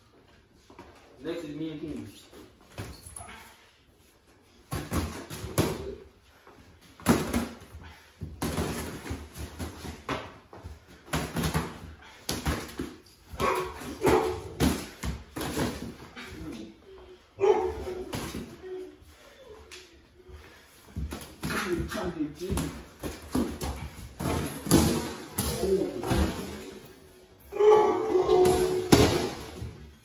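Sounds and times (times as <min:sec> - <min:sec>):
dog barking: 0:13.4 - 0:14.4.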